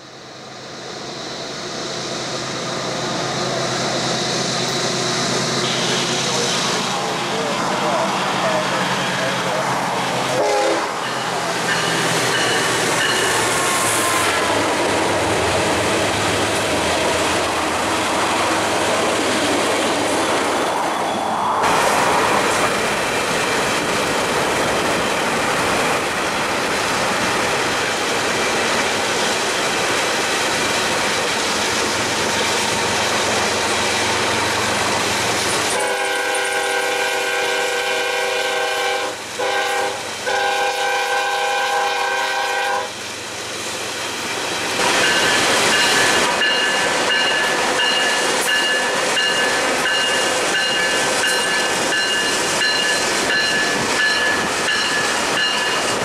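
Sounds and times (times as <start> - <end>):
freight train rumbling past: 0.0 - 56.0
locomotive air horn blast: 5.6 - 6.4, 10.3 - 11.0, 35.7 - 43.0.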